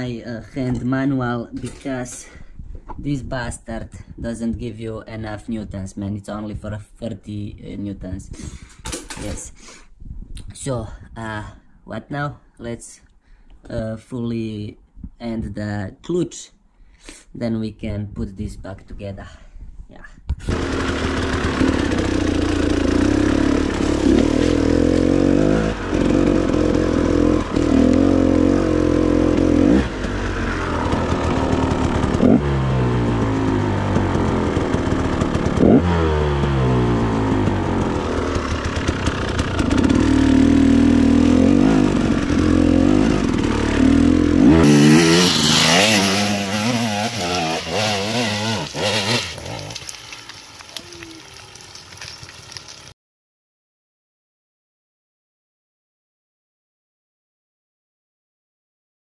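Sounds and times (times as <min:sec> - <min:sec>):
dirt bike engine revving: 0:20.4 - 0:50.2.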